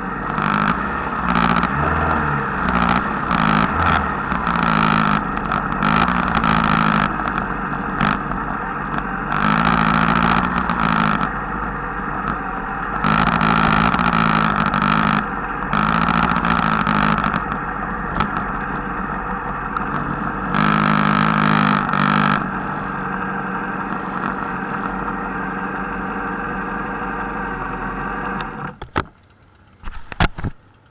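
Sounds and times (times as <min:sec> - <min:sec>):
engines revving: 0:00.0 - 0:28.8
motorcycle engines running: 0:00.0 - 0:30.9
clicks: 0:00.3 - 0:18.9, 0:23.9 - 0:25.0.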